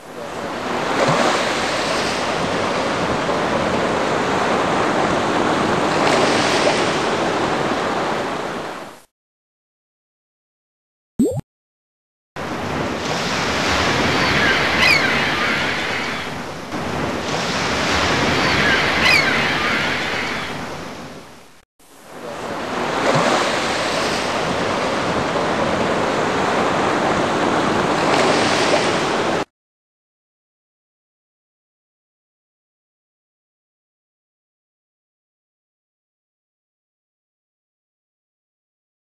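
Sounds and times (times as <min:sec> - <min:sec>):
waves washing in and out: 0:00.0 - 0:09.1, 0:12.4 - 0:29.5.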